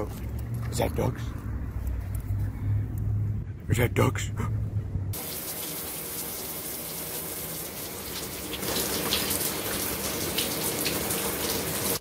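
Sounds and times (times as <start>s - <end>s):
tap water spraying: 5.2s - 12.0s.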